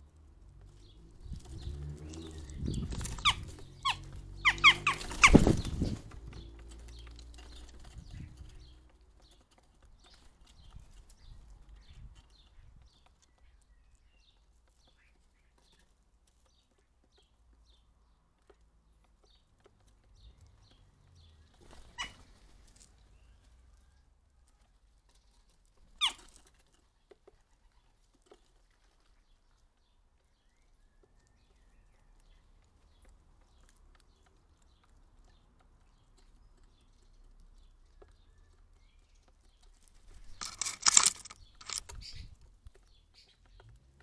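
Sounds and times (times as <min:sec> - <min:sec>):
crow wingbeats: 0:01.4 - 0:08.8, 0:21.5 - 0:22.9, 0:25.8 - 0:26.4.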